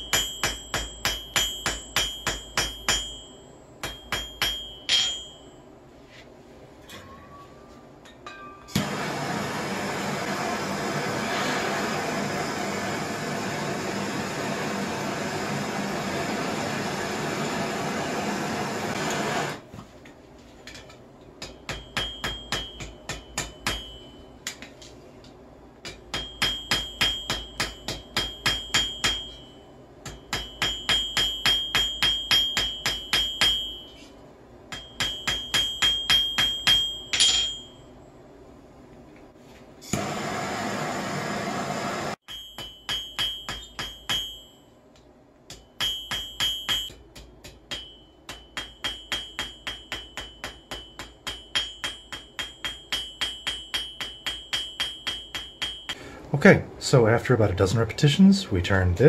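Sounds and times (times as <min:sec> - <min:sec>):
hammer striking metal on anvil: 0:00.0 - 0:05.7, 0:08.0 - 0:09.2, 0:20.7 - 0:37.9, 0:42.2 - 0:56.2
gas torch hissing: 0:08.8 - 0:19.6, 0:39.9 - 0:42.2.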